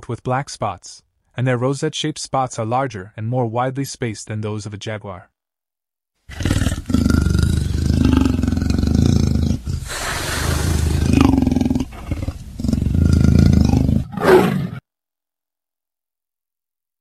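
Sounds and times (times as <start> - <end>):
big cat roaring: 6.3 - 14.8.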